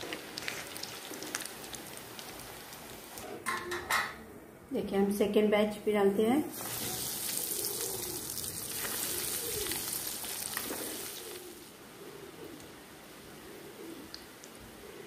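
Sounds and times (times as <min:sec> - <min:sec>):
pigeons cooing: 0:00.0 - 0:01.7, 0:06.8 - 0:15.0
food sizzling in hot oil: 0:00.0 - 0:03.2, 0:06.5 - 0:11.7.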